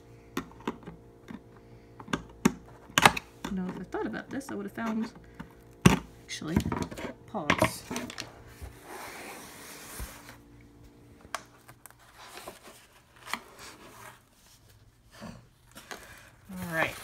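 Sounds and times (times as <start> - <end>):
cardboard rustling: 7.7 - 17.0.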